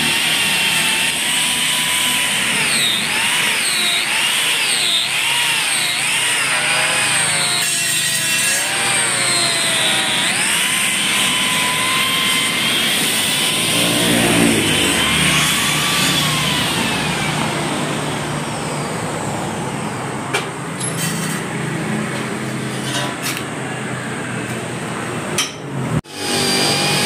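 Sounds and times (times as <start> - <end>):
power tool motor whine on metal: 0.0 - 19.0, 26.1 - 27.0.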